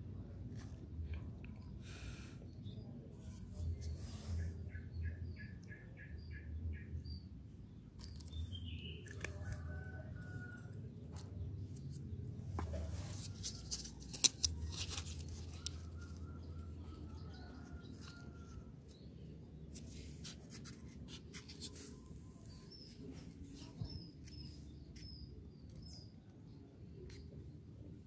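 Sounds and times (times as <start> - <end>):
cardboard being handled and folded: 11.1 - 18.6, 19.7 - 25.1.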